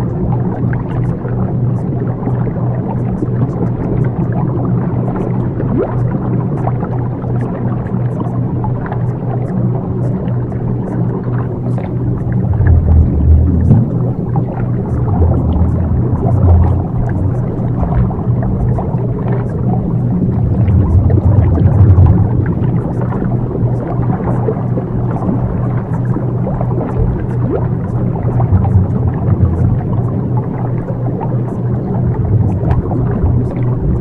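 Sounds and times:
steady low drone: 0.0s - 34.0s
rumbling layer: 11.4s - 24.4s, 26.5s - 34.0s.

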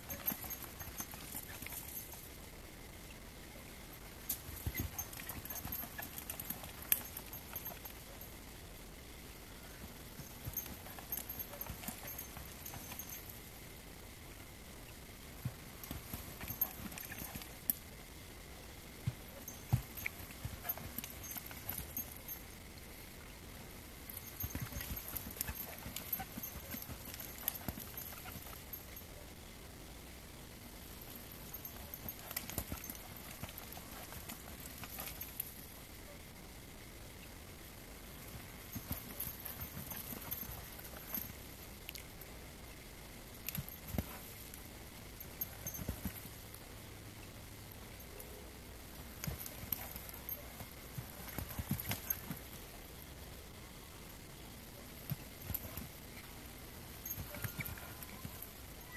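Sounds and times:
hooves thudding in sand: 0.0s - 2.3s, 4.3s - 8.2s, 10.1s - 13.4s, 15.4s - 17.8s, 19.1s - 22.4s, 24.2s - 29.0s, 31.1s - 35.6s, 38.2s - 41.4s, 43.4s - 44.5s, 45.2s - 46.4s, 49.1s - 52.6s, 54.9s - 56.0s, 56.9s - 58.5s.

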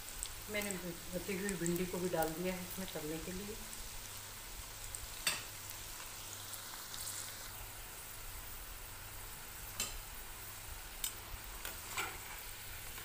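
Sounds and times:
fritters deep-frying in oil: 0.0s - 13.0s.

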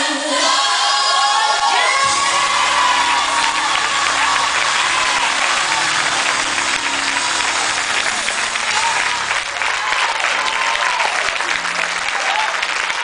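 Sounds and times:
crowd clapping and cheering: 0.3s - 13.0s
held music chord: 2.0s - 9.9s.

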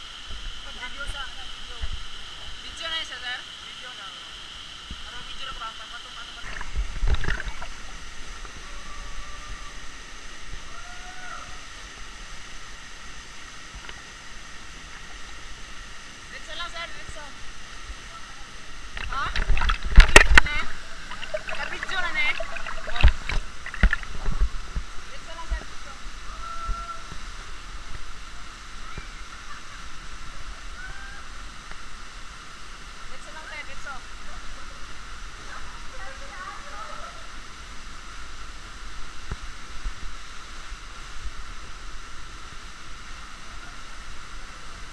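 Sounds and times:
small waterfall rushing: 0.0s - 44.9s.

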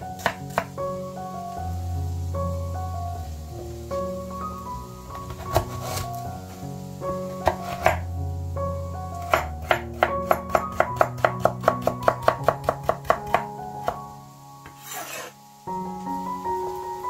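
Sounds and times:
background music: 0.0s - 17.0s
knife chopping on wooden board: 5.3s - 6.0s, 7.4s - 8.0s, 9.3s - 14.0s.

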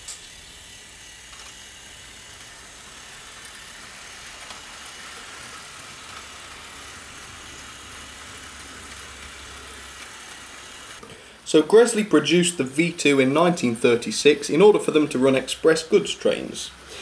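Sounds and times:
electric motor hum: 0.0s - 11.0s
model train wheels rumbling on rail: 0.0s - 11.0s.

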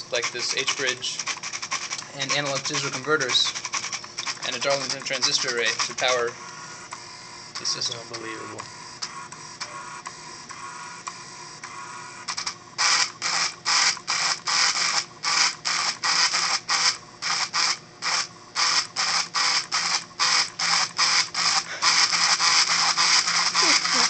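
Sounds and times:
buzzing and scratching strokes: 0.0s - 12.0s, 12.8s - 24.0s
pen plotter motor hum: 0.0s - 24.0s.

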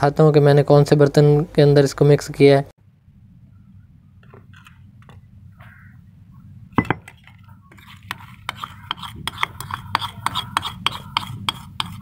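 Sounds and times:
steady low hum: 0.0s - 12.0s
utensil scraping stone mortar: 7.0s - 12.0s.

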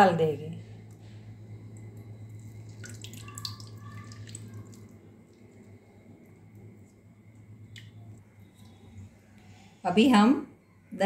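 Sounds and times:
low steady hum: 0.0s - 11.0s
water dripping into bowl: 1.6s - 9.0s.

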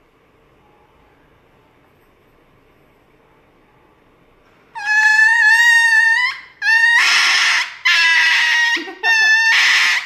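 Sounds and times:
dog screaming in high-pitched wails: 4.8s - 10.0s.

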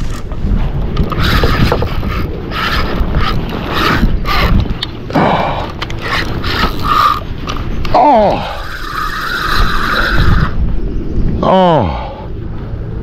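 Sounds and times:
fishing reel rasping: 1.0s - 10.6s.

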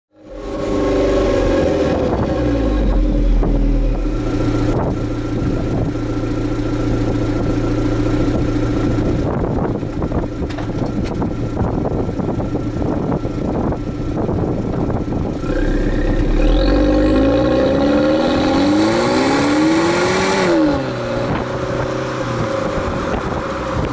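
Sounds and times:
car engine exhaust idling and revving: 0.1s - 23.9s.

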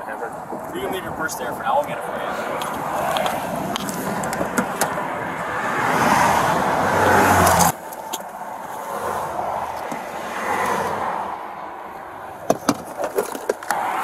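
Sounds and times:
highway traffic: 0.0s - 14.0s
car passing at speed: 1.6s - 12.4s, 13.6s - 14.0s.

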